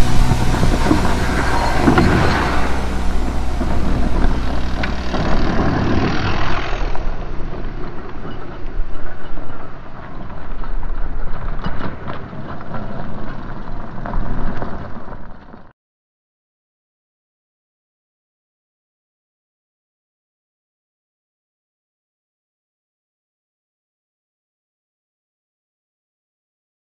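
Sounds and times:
bike tyres crunching over dirt: 0:00.0 - 0:15.7
bikes rattling and clattering: 0:00.0 - 0:15.7.

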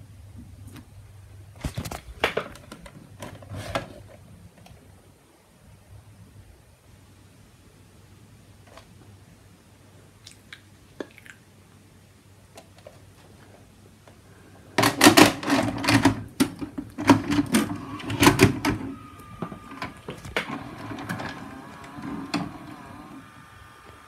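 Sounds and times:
cassette clacking into player: 0:14.8 - 0:24.0
tape machine motor whirring: 0:17.3 - 0:24.0.

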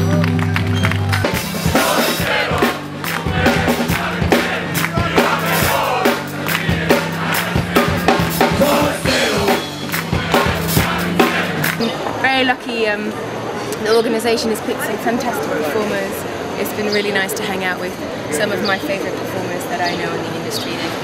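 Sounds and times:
live band music: 0:00.0 - 0:12.0
crowd: 0:00.0 - 0:21.0.

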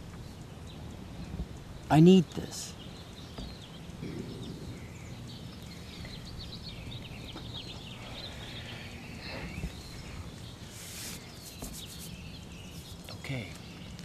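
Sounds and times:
small birds chirping: 0:00.0 - 0:14.0
low background rumble: 0:02.6 - 0:11.4
brief hiss: 0:10.6 - 0:12.1.

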